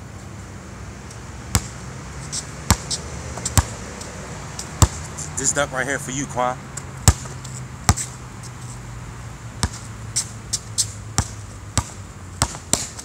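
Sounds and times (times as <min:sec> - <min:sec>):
basketball bouncing on hard court: 0:01.5 - 0:01.8, 0:02.6 - 0:03.8, 0:04.8 - 0:05.1, 0:07.0 - 0:08.2, 0:09.6 - 0:13.0.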